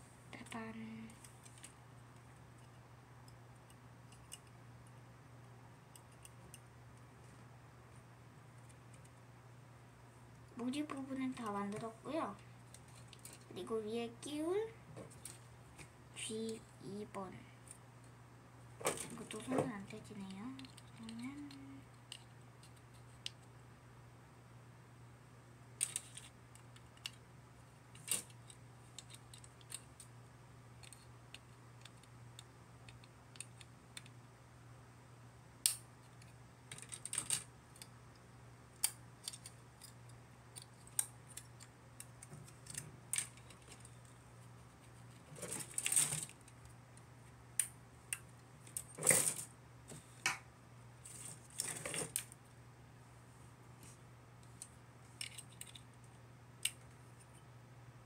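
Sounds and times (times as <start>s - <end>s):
faint steady hum: 0.0s - 58.0s
plastic clicks and snips: 35.6s - 37.9s.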